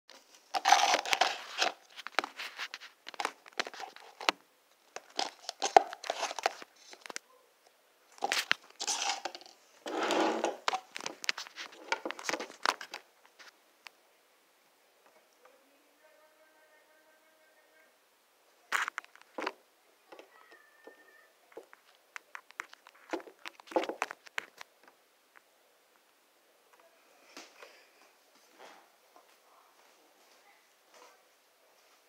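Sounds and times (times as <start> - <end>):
crinkly rustling and crackling: 0.1 - 7.3, 8.1 - 13.6, 18.7 - 26.1.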